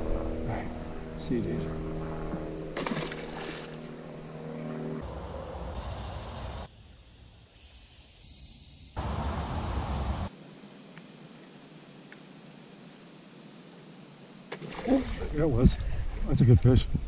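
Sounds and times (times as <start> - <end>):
low multi-tone hum: 0.0 - 6.7
high insect drone: 0.0 - 17.0
wind rumbling on microphone: 15.0 - 17.0.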